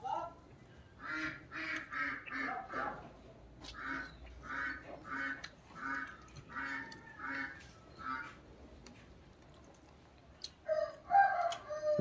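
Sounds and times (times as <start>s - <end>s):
duck quacking: 1.0s - 3.0s, 3.7s - 8.4s.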